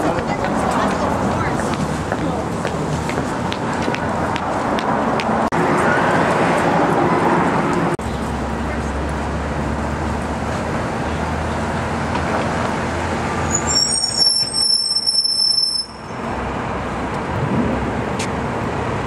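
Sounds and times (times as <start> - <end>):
traffic rumble: 0.0 - 19.0
high piercing squeal: 13.5 - 16.2.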